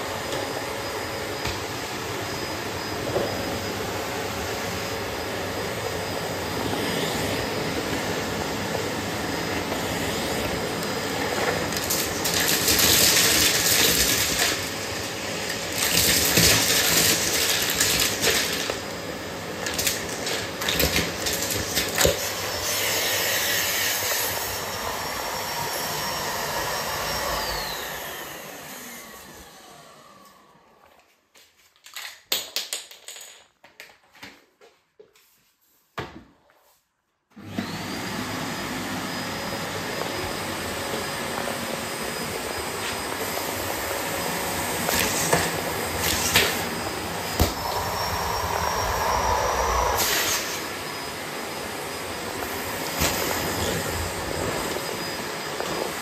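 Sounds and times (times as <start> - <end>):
vacuum motor whine: 0.0 - 31.0, 37.4 - 56.0
vacuum cleaner running: 0.0 - 31.1, 37.3 - 56.0
plastic pieces rattling up hose: 11.7 - 14.6, 15.7 - 18.8, 31.8 - 34.2.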